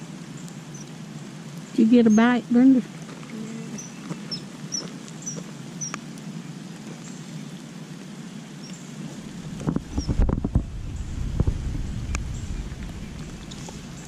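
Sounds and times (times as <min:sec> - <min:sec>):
rain patter: 0:00.0 - 0:14.0
small bird chirping: 0:00.4 - 0:00.9, 0:03.2 - 0:06.0, 0:08.6 - 0:09.0, 0:09.7 - 0:14.0.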